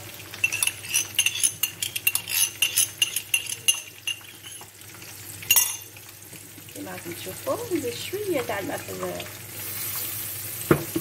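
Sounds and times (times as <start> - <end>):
spoon scraping glass cup: 0.4 - 4.7.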